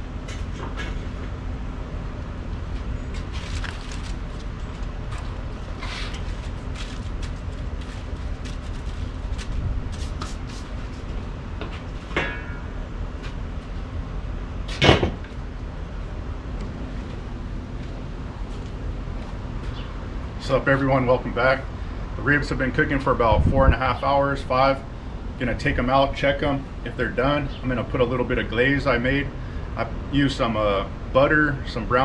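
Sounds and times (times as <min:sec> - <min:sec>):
low background rumble: 0:00.0 - 0:32.0
metallic clank: 0:12.1 - 0:12.8.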